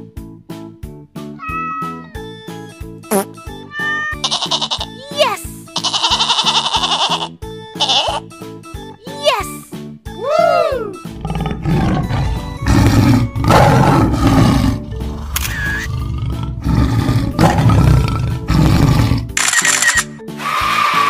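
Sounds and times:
background music: 0.0s - 21.0s
rising and falling animal call: 1.4s - 2.2s, 3.7s - 4.8s
lion roaring and growling: 11.1s - 19.4s.

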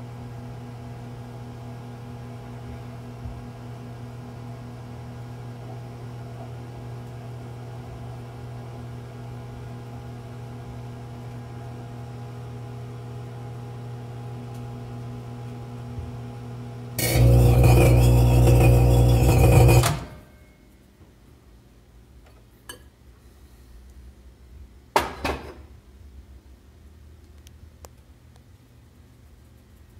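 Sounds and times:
microwave oven humming: 0.0s - 20.7s
harsh buzzing burst: 17.0s - 20.2s.

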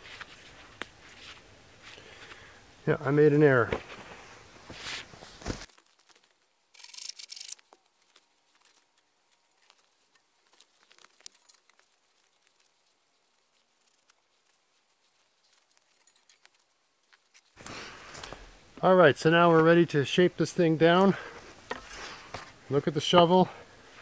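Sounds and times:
gloved hands rustling on pole: 3.6s - 6.6s, 7.5s - 18.7s, 21.0s - 24.0s.

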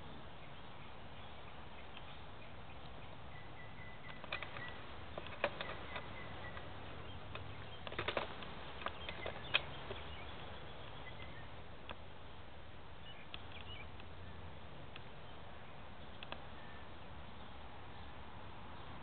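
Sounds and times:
steady low hiss: 0.0s - 19.0s
high bird chirps: 0.5s - 11.6s
small clicks and rustles: 4.0s - 11.0s.

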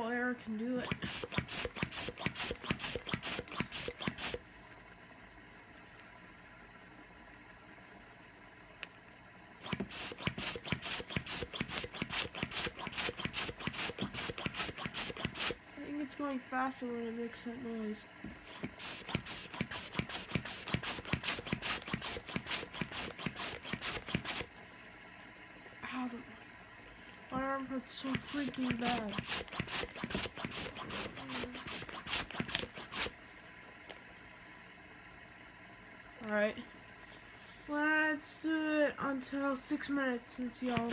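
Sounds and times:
hand pump puffing air: 0.8s - 4.4s, 9.6s - 15.6s, 18.4s - 24.5s, 28.0s - 33.2s, 40.6s - 40.9s.

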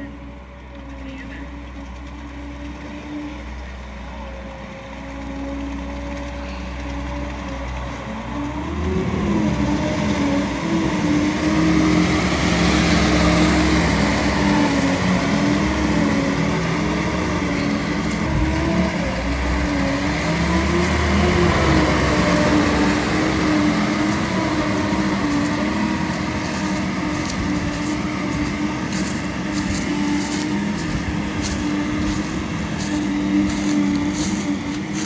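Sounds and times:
vehicle engine under load: 0.0s - 35.0s.

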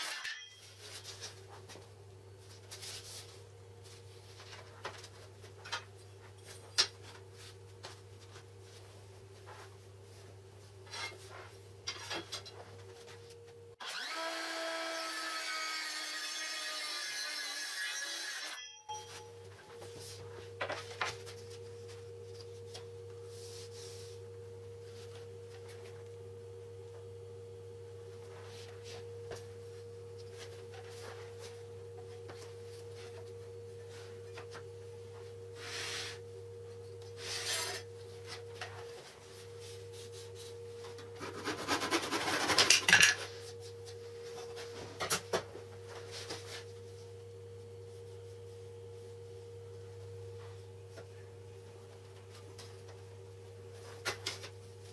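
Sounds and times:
steady low hum: 18.9s - 54.9s.

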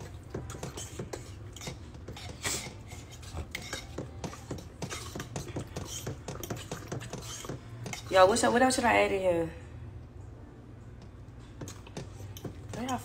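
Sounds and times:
utensil clinking and scraping dish: 0.0s - 8.5s, 11.6s - 13.0s.

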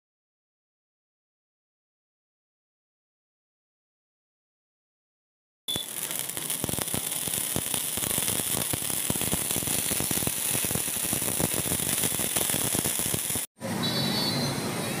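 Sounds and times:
fireworks popping and crackling: 5.7s - 13.5s
hiss of burning sparks: 5.7s - 13.5s.

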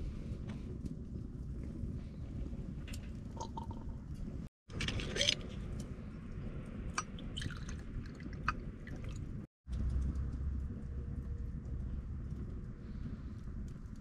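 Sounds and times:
wood fire crackling: 0.0s - 14.0s
liquid pouring into glass: 7.3s - 9.2s.

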